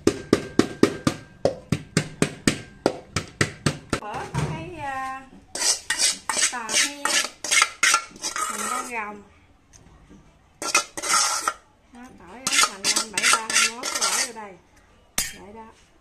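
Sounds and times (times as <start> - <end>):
wooden pestle pounding in metal pot: 0.0 - 4.0, 12.5 - 14.3
metal pot clinking and scraping: 5.5 - 9.0, 10.6 - 11.6, 12.4 - 14.4.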